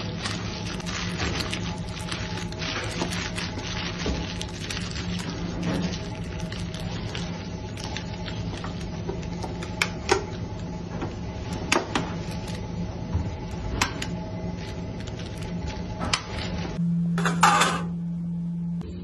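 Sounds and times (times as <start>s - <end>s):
baking paper crinkling: 0.0s - 9.8s, 11.4s - 12.7s, 13.3s - 16.8s
low hum: 0.0s - 19.0s.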